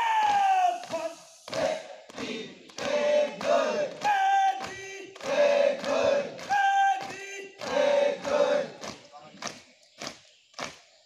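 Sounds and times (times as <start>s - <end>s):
cadets shouting drill calls in unison: 0.0s - 1.8s, 3.4s - 9.0s.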